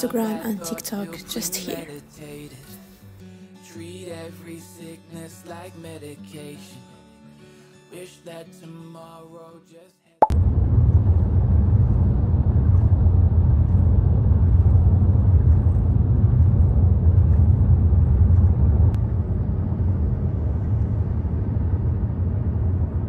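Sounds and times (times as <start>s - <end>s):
road and engine noise inside car: 10.4s - 23.0s.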